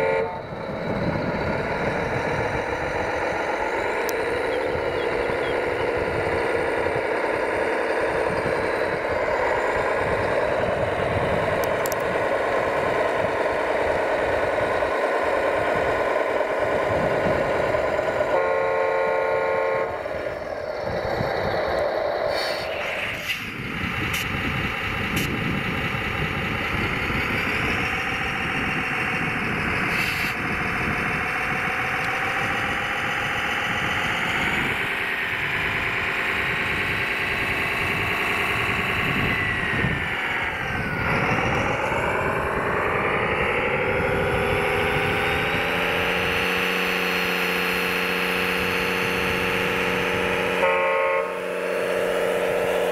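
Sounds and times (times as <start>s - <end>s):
engine-like drone of models: 0.0s - 52.9s
short horn toot: 50.6s - 51.6s.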